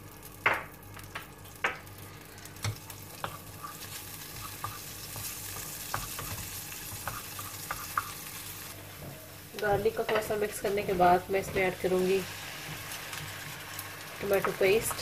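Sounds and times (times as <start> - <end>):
garlic sizzling in butter: 1.0 - 15.0
wooden spoon knocking on pan: 9.7 - 11.7.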